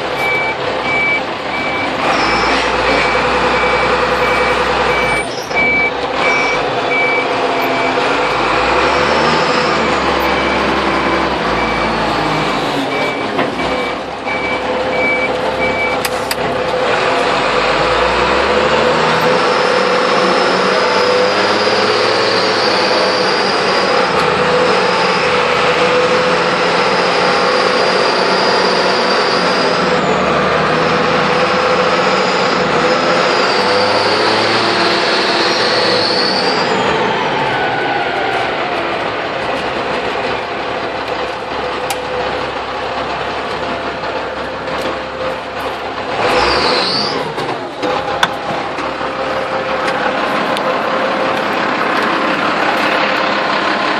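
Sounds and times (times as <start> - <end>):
forklift engine running: 0.0 - 53.9
reversing beeper short beeps: 0.2 - 16.0.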